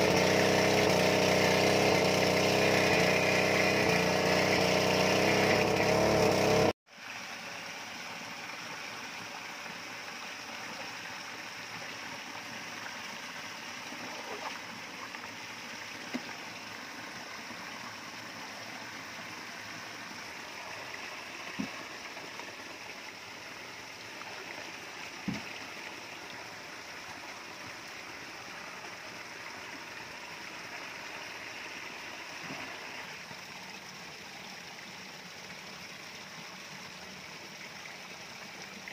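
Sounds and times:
pump engine running: 0.0 - 38.9
faint splashes and knocks: 25.2 - 25.6.

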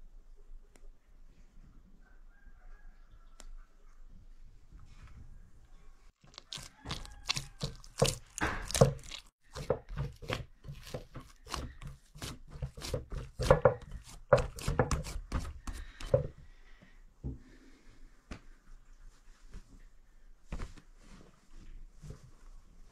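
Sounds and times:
dough slapping against glass bowl: 6.5 - 16.3.

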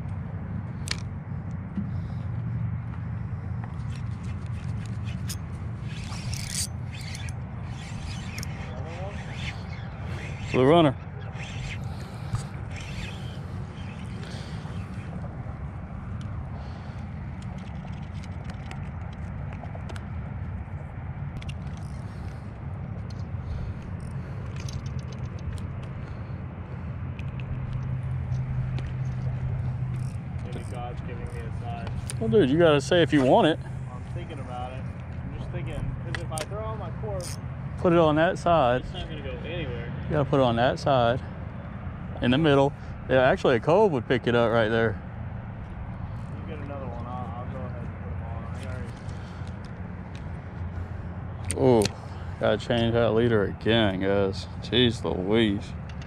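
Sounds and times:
low engine hum: 0.0 - 56.0
clicks and rattles of handling: 24.0 - 25.9.

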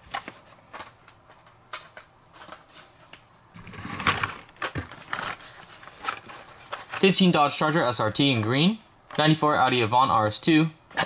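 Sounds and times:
cardboard rustling scrape: 3.6 - 7.4.

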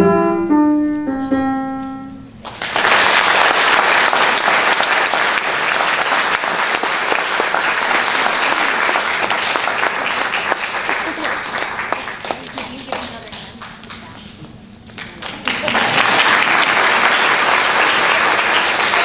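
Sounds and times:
piano note: 0.0 - 2.4
audience applauding: 2.4 - 19.0.

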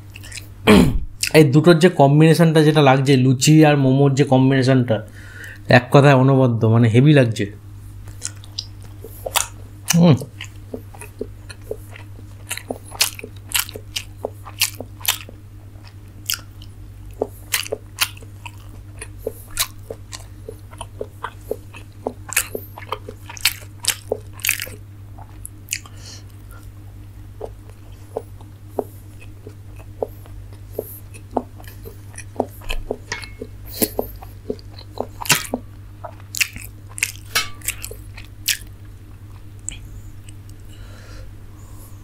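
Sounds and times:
person chewing with mouth clicks: 0.0 - 0.5, 8.0 - 40.8
steady low hum: 0.0 - 42.0.

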